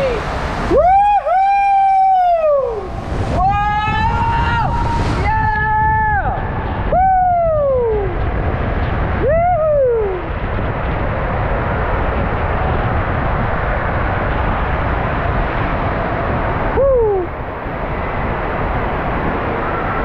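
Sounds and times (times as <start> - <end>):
person whooping: 0.0 - 2.9, 9.2 - 10.3, 16.8 - 17.3.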